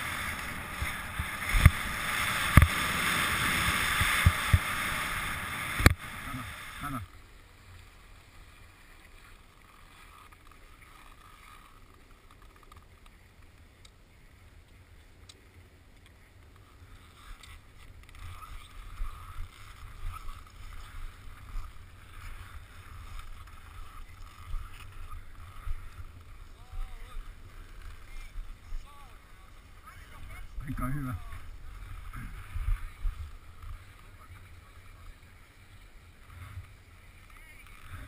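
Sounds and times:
wind buffeting camera: 0.0 - 7.0, 17.3 - 38.0.

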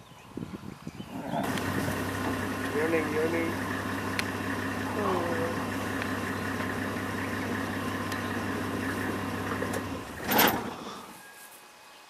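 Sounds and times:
vehicle engine idling: 1.4 - 11.2.

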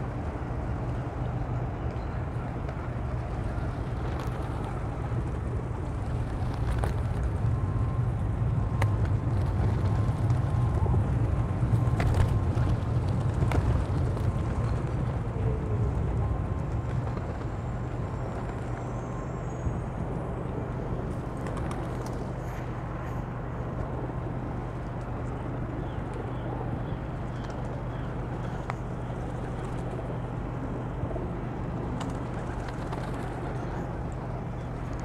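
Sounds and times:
low outdoor rumble: 0.0 - 35.0.

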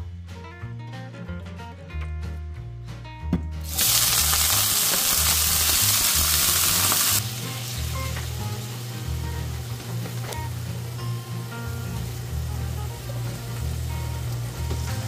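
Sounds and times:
shrimp sizzling in hot oil: 3.6 - 15.0.

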